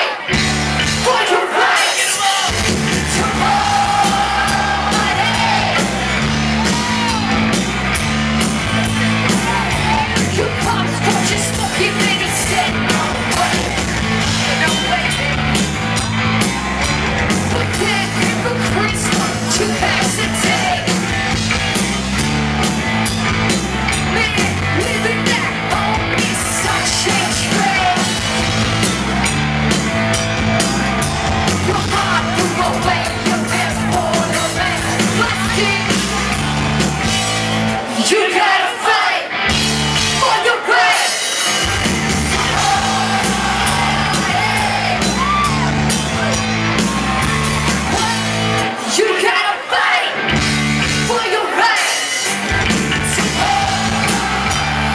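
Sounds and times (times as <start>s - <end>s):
drums: 0.0s - 54.9s
bass line: 0.3s - 1.2s, 2.5s - 37.9s, 39.4s - 40.3s, 41.5s - 48.8s, 50.2s - 51.2s, 52.3s - 54.9s
electric guitar: 41.4s - 48.9s.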